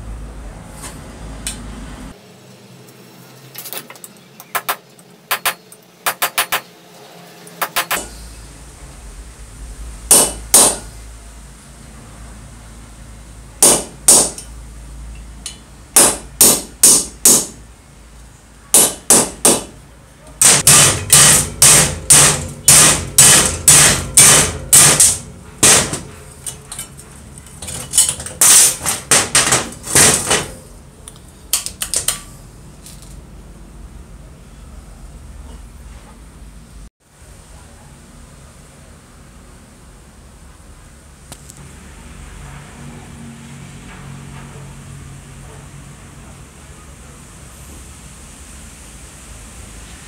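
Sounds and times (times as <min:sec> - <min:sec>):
hammer blows on metal: 0:07.6 - 0:08.3, 0:10.1 - 0:11.0, 0:20.4 - 0:26.5.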